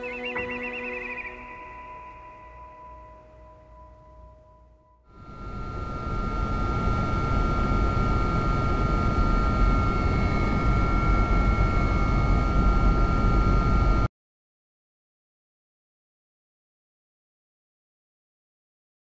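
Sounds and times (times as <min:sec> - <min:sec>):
high whining tones: 0:00.0 - 0:14.1
helicopter engine and rotor din: 0:05.2 - 0:14.1.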